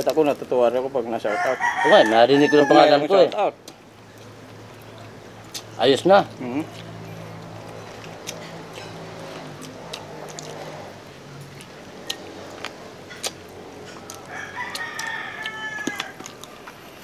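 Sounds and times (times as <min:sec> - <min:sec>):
rooster crowing: 0:01.2 - 0:03.1, 0:14.0 - 0:16.7
people chewing: 0:03.1 - 0:17.0.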